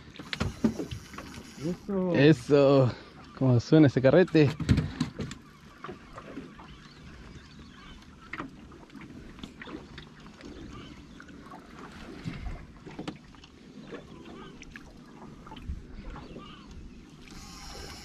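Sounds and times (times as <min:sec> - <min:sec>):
water slapping against hull: 0:00.0 - 0:18.0
knocks and bumps against boat: 0:04.2 - 0:06.5.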